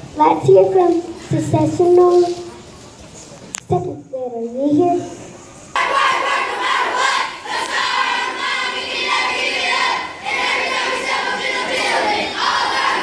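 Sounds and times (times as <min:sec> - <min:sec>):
children chanting in unison: 0:05.8 - 0:13.0.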